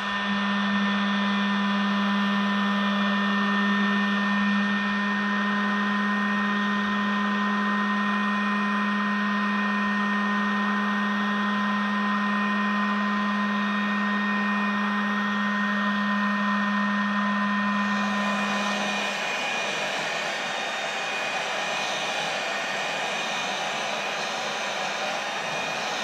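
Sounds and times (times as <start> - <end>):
heat gun blowing air: 17.6 - 26.0.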